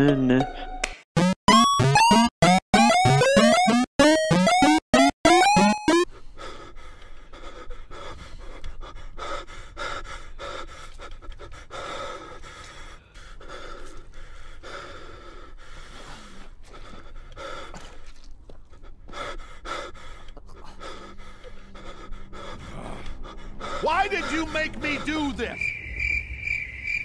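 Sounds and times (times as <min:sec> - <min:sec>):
man panting heavily: 0:06.1 - 0:25.5.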